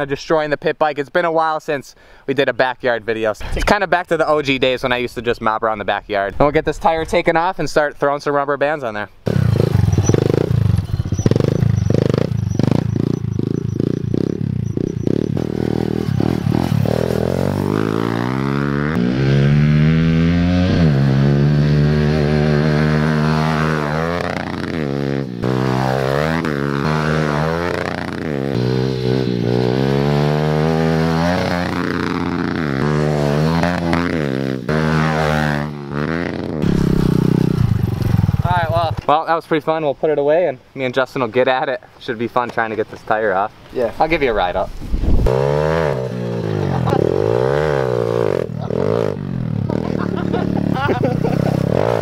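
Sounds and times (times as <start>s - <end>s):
small motorbike engine revving: 9.2s - 38.5s, 45.1s - 52.0s.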